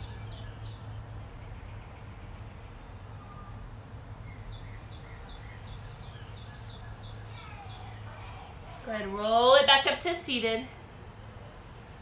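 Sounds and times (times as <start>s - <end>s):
birds chirping: 0.0s - 11.7s
thin whistled bird notes: 3.1s - 7.3s.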